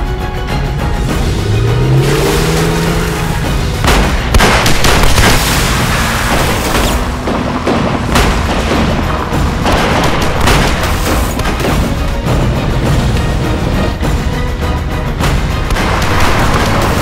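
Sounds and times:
dramatic orchestral music: 0.0 - 17.0
gunshots: 3.7 - 12.0, 15.7 - 17.0.

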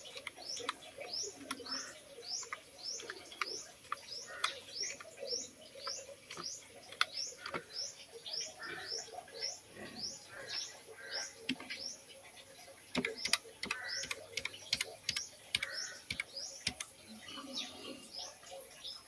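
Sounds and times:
keyboard keys clicking: 0.0 - 1.8, 12.9 - 16.9
bird chirping: 0.0 - 19.0.

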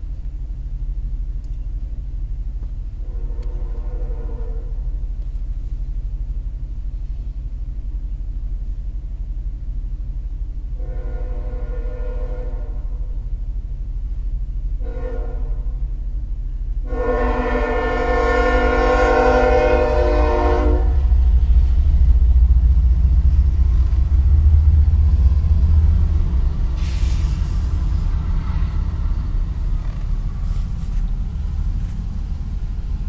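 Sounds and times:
diesel locomotives rumbling: 0.0 - 33.0
train air horn blasts: 3.0 - 4.9, 10.8 - 13.1, 14.8 - 15.9, 16.8 - 21.2.

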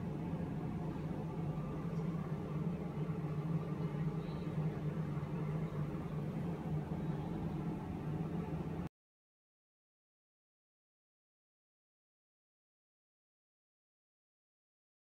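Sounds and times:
steady low hum: 0.0 - 8.9.

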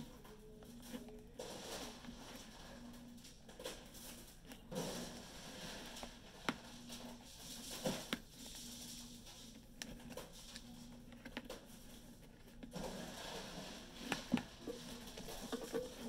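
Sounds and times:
spoon stirring slime: 9.5 - 16.0.

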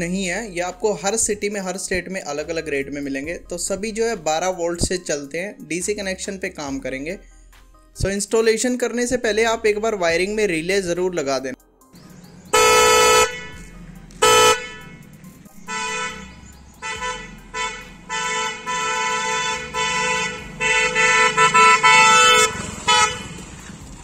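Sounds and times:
dual-tone motorcycle horn blasts: 12.5 - 23.7.

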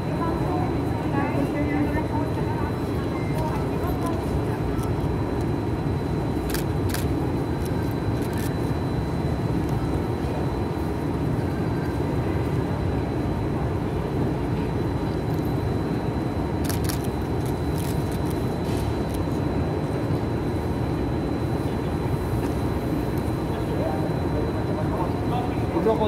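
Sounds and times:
low rumbling background noise: 0.0 - 26.0.

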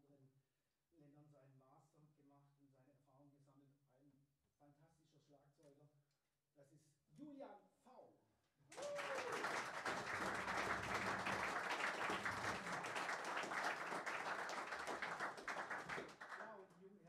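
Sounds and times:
audience applauding: 8.7 - 16.6.

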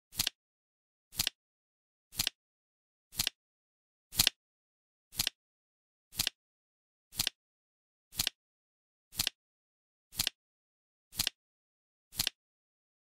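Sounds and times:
flip clock clicking: 0.1 - 0.4, 1.1 - 1.4, 2.1 - 2.4, 3.1 - 3.4, 4.1 - 4.4, 5.1 - 5.4, 6.1 - 6.4, 7.1 - 7.4, 8.1 - 8.4, 9.1 - 9.4, 10.1 - 10.4, 11.1 - 11.4, 12.1 - 12.4.

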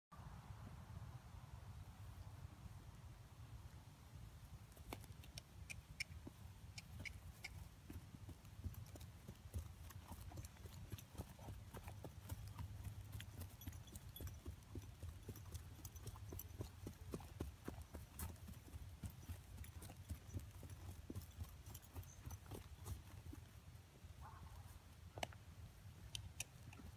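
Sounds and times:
horse hoofbeats on grass: 4.6 - 24.9.

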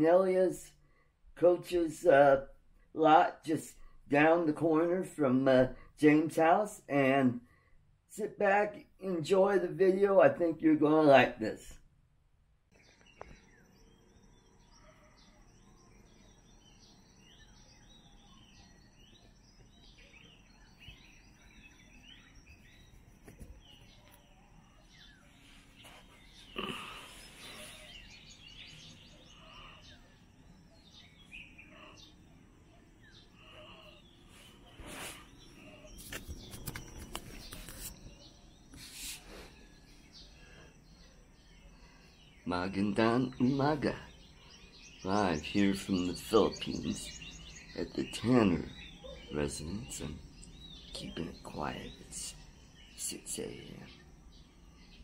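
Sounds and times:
birds chirping: 0.0 - 12.0, 12.6 - 55.0
camera handling rustles: 35.9 - 38.1.

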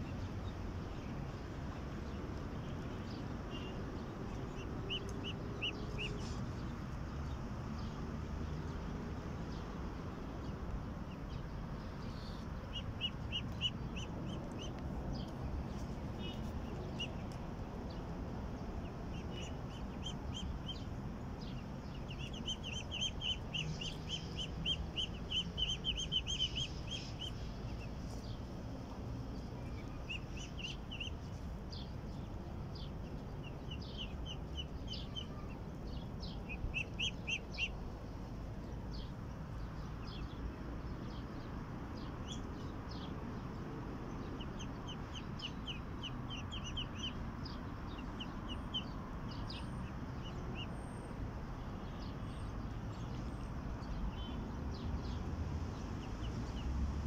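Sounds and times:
low background noise: 0.0 - 57.0
ducklings peeping: 2.4 - 7.0, 10.1 - 28.3, 28.9 - 31.9, 33.1 - 39.2, 42.1 - 50.7.

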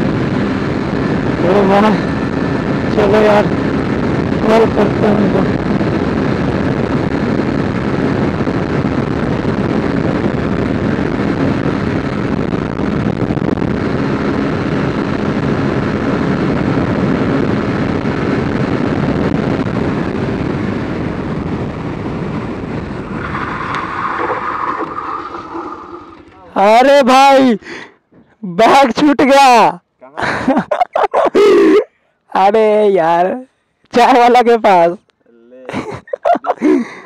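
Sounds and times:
motorcycle engine running: 0.0 - 26.7
wind rush over microphone: 0.0 - 27.6.

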